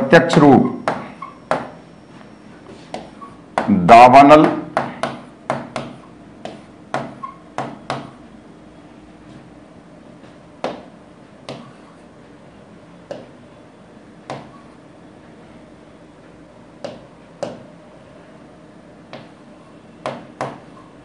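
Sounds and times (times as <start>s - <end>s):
pen tapping on writing board: 4.4s - 8.2s, 10.6s - 10.9s, 11.5s - 11.8s, 13.1s - 13.3s, 16.8s - 17.7s, 20.0s - 20.6s.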